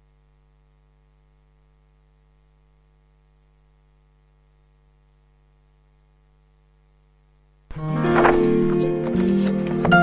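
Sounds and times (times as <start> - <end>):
faint mains hum: 0.0 - 10.0.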